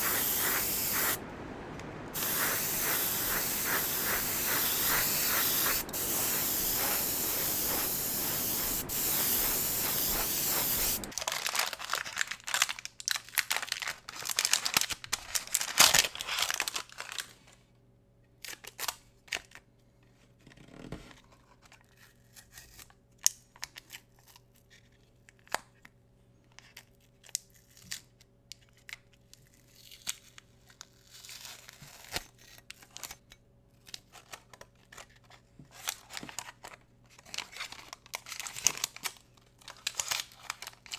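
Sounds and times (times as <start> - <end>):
airbrush spraying hiss: 0.0 - 11.1
masking paper crinkling: 2.1 - 17.4, 33.9 - 40.9.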